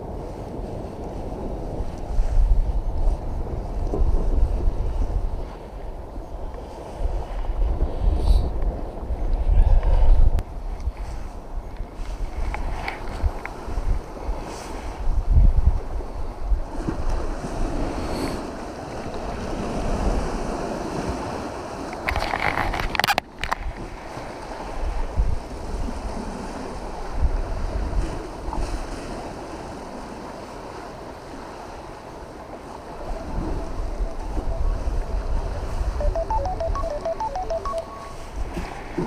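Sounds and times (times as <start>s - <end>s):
wind buffeting microphone: 0.0s - 29.0s
small waves breaking: 16.0s - 33.9s.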